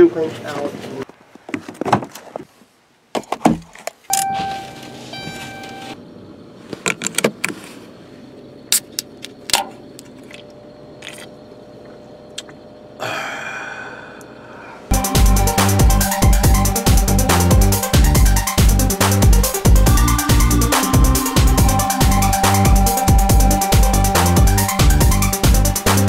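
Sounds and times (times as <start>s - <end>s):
electronic warning chime: 4.1s - 6.0s, 19.5s - 25.6s.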